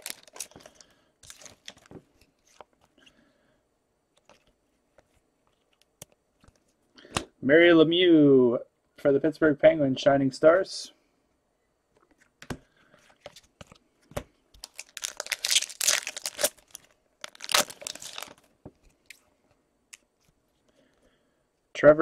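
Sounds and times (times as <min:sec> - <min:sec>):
card wrapper tearing and crinkling: 0:00.0 - 0:02.9, 0:14.6 - 0:18.5.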